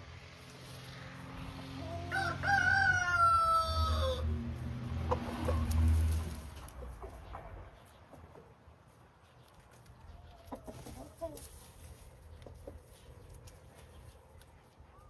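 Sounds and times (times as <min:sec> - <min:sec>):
chickens clucking: 0:01.7 - 0:02.3, 0:03.0 - 0:15.0
rooster crowing: 0:01.8 - 0:04.4.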